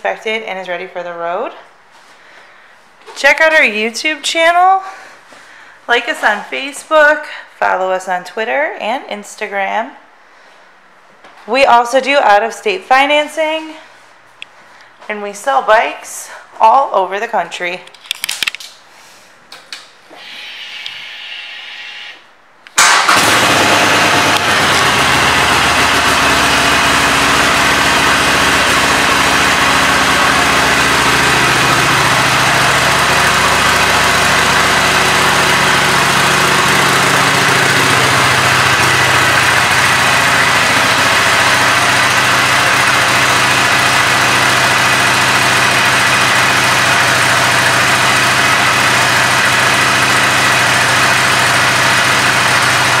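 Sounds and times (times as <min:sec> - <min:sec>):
motorcycle engine starting and idling: 0:22.7 - 0:53.0.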